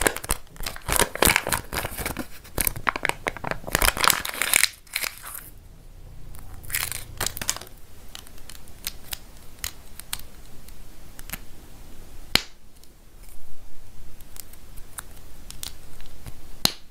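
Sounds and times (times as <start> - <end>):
paper crinkle: 0.0 - 5.5.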